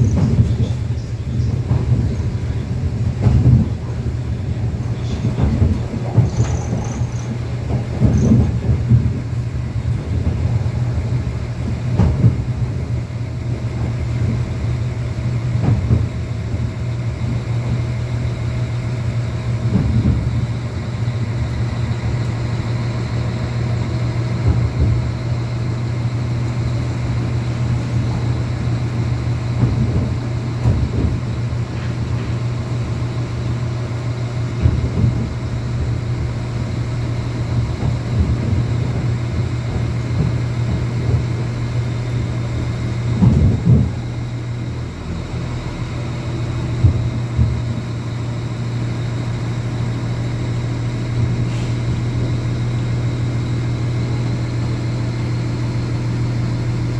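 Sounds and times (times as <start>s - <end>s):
wheels knocking on track: 0.0s - 14.8s, 19.3s - 25.5s, 26.5s - 45.4s, 46.7s - 47.9s
train running hum: 0.0s - 56.9s.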